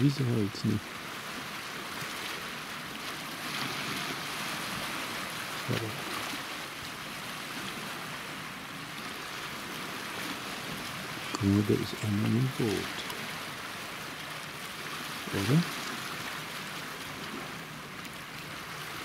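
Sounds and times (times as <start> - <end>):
waves washing over rocks: 0.0 - 19.0
voice murmuring: 5.7 - 6.1.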